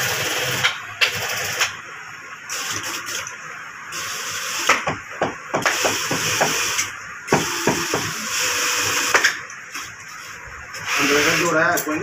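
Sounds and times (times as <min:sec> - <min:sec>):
sewing machine motor hiss: 0:00.0 - 0:01.7, 0:02.5 - 0:03.3, 0:03.9 - 0:04.8, 0:05.6 - 0:11.8.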